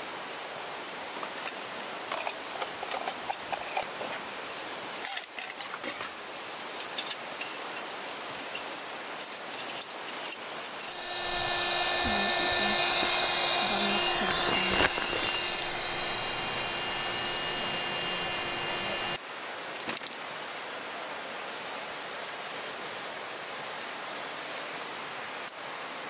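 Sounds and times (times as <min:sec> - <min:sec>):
electric air pump whining: 0:10.8 - 0:19.2.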